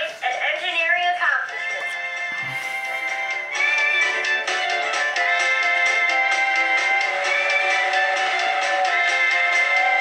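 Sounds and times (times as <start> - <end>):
instrumental music with steady beat: 1.5 - 10.0.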